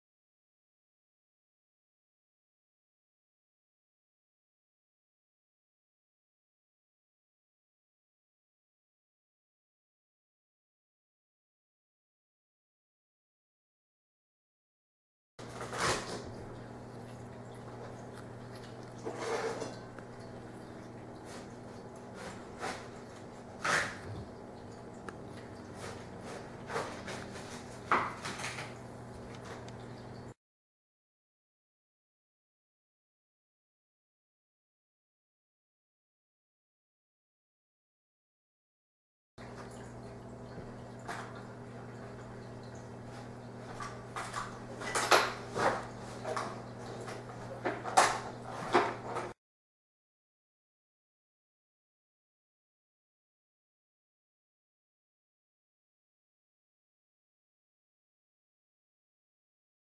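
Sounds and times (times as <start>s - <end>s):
low electrical hum: 15.4s - 30.4s, 39.4s - 49.4s.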